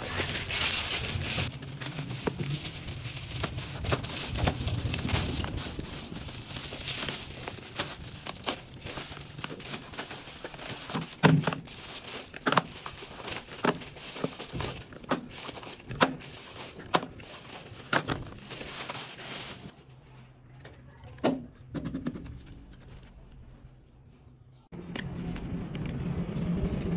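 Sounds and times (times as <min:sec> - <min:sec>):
bubble wrap crinkling: 0:00.0 - 0:19.8.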